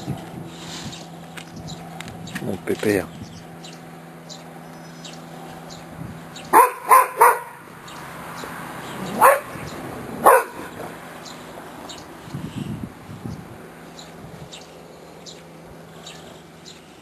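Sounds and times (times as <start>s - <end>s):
dog barking: 6.5s - 7.6s, 9.0s - 9.6s, 10.2s - 10.9s.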